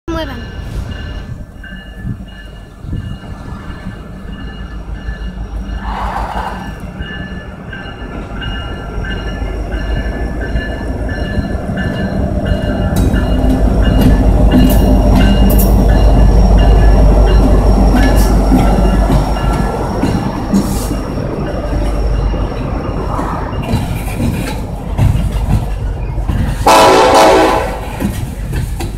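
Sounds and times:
diesel locomotive engine rumble: 0.1s - 28.9s
wheels clacking over rail joints: 6.3s - 28.9s.

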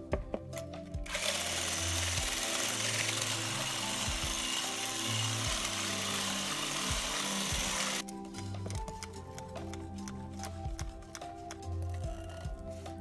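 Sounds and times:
electric hand mixer whipping cream: 1.1s - 8.0s.

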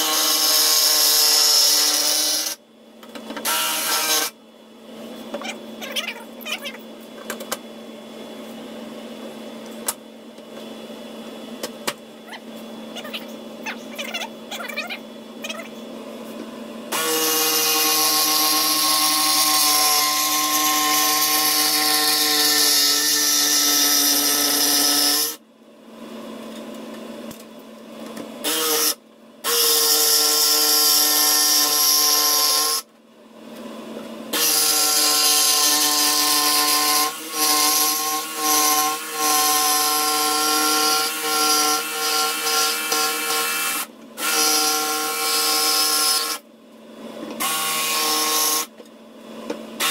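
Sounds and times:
electric jigsaw running: 0.0s - 2.6s, 3.4s - 4.4s, 16.9s - 25.4s, 28.4s - 32.9s, 34.3s - 46.4s, 47.4s - 48.7s.

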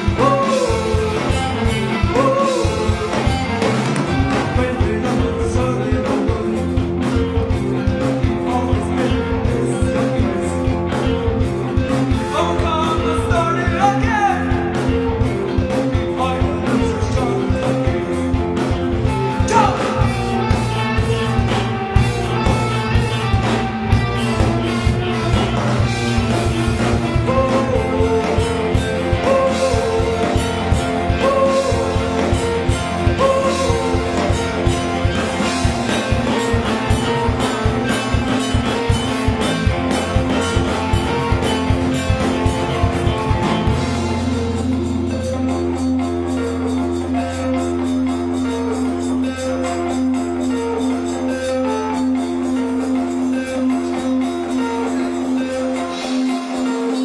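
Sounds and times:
person singing: 0.0s - 11.3s, 12.2s - 18.4s, 19.2s - 21.8s, 26.4s - 38.2s
guitar: 0.0s - 57.0s
rock music: 0.0s - 57.0s
steady drum beat: 0.0s - 57.0s.

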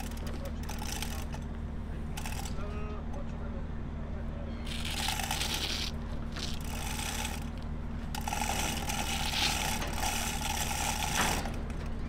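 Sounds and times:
hoist chain rattling: 0.0s - 1.4s, 2.1s - 2.6s, 6.4s - 11.9s
hoist pawl clicking: 0.0s - 1.5s, 2.1s - 2.6s, 4.7s - 12.0s
steady low hum: 0.0s - 12.0s.

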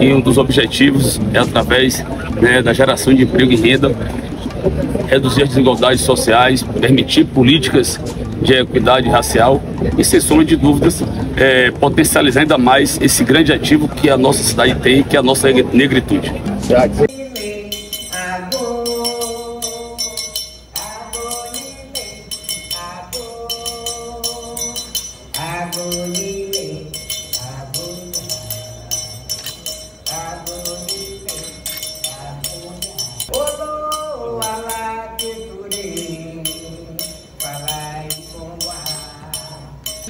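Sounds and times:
jingling percussion: 17.0s - 40.0s
woman singing slow melody: 17.1s - 28.9s, 30.1s - 39.8s.

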